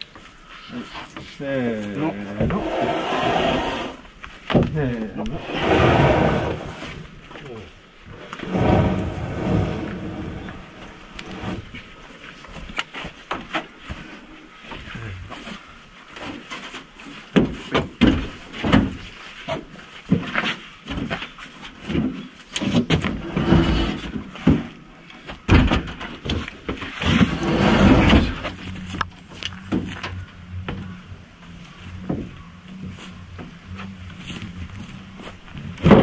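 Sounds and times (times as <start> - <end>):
wood sliding on wood: 2.2 - 4.2, 5.2 - 7.1, 8.2 - 11.9, 22.6 - 24.7, 26.8 - 29.0
wooden beams knocking and thumping: 17.3 - 29.0, 35.8 - 36.0.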